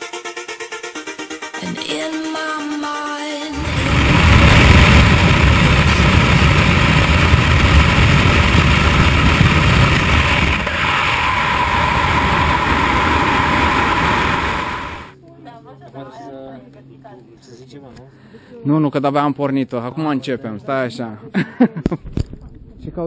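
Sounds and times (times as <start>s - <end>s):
aircraft engine roar: 3.5s - 15.2s
wind roar: 3.5s - 15.2s
wind buffeting microphone: 3.6s - 15.2s.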